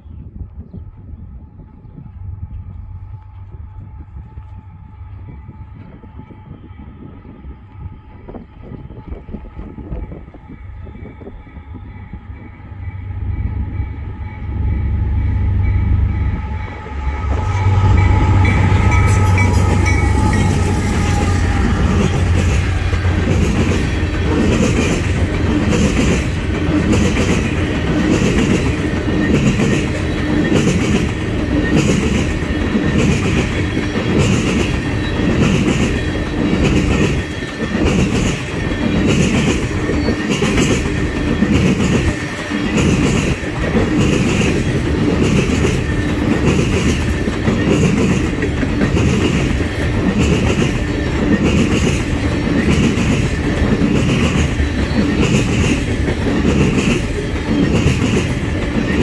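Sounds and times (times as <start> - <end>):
train rumble: 0.0 - 59.0
train wheels clickety-clack: 17.2 - 59.0.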